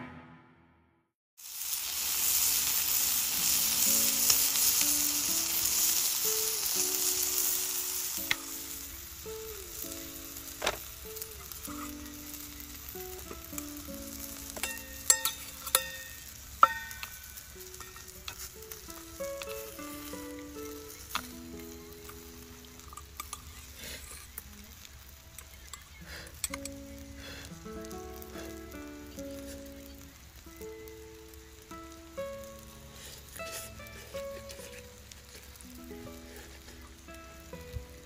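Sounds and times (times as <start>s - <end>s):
meat sizzling in a frying pan: 1.4s - 38.0s
soft background music: 2.9s - 38.0s.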